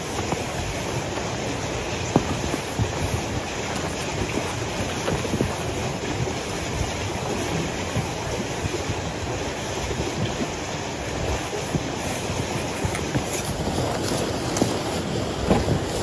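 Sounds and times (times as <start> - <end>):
brush scraping snow off car: 0.0 - 7.5, 11.0 - 16.0
snow sliding off car: 0.0 - 16.0.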